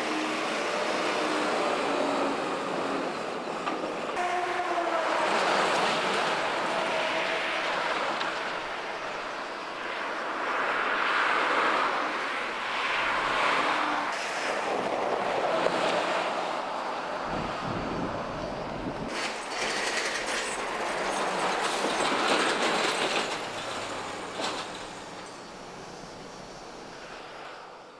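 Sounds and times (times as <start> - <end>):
highway traffic passing: 0.0 - 27.9
wheels banging over potholes: 18.7 - 26.0.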